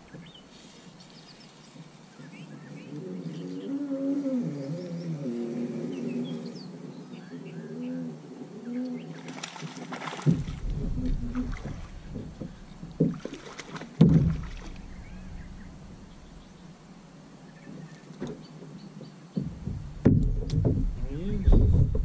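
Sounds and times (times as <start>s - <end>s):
fish splashing at water surface: 9.2s - 14.9s
knocks against plastic boat hull: 14.0s - 14.6s, 19.4s - 20.9s.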